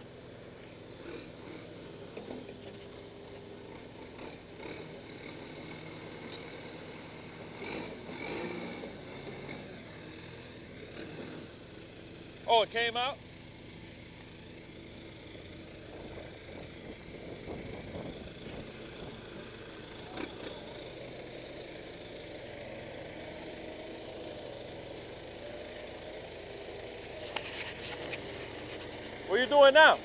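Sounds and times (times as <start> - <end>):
diesel engine running: 0.0 - 30.0
sharp clicks and rattles: 26.0 - 30.0.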